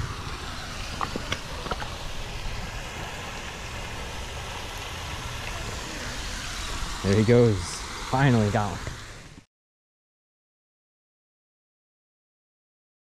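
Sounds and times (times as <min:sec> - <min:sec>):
hiss: 0:00.0 - 0:09.4.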